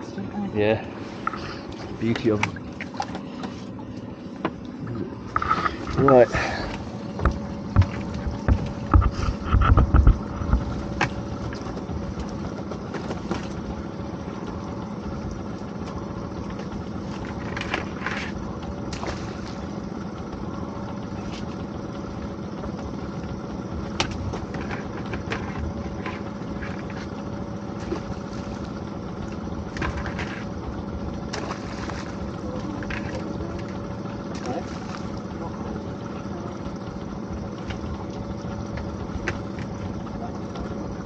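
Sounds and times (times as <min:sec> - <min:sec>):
boat motor running: 0:00.0 - 0:41.0
heavy thumps: 0:07.2 - 0:10.8.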